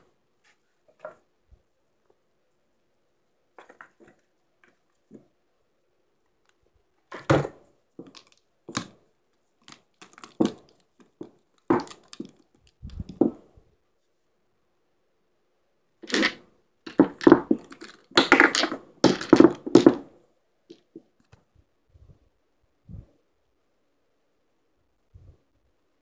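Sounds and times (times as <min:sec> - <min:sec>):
pool balls clacking: 0:07.1 - 0:09.0, 0:09.6 - 0:13.4, 0:16.0 - 0:20.1
balls knocking on table: 0:09.7 - 0:13.4, 0:16.0 - 0:20.1.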